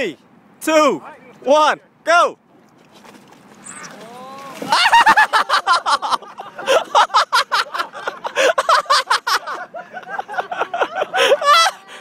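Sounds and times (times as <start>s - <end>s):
people laughing hard: 4.6s - 12.0s.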